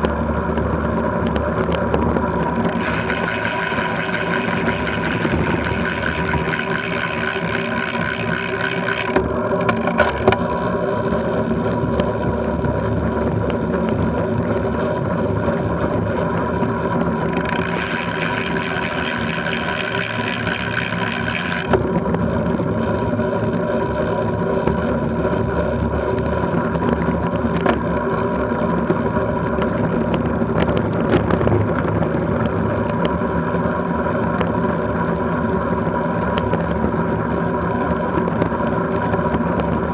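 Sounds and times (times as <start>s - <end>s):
bicycle tyre and drivetrain noise: 0.0s - 39.9s
wind noise: 0.0s - 39.9s.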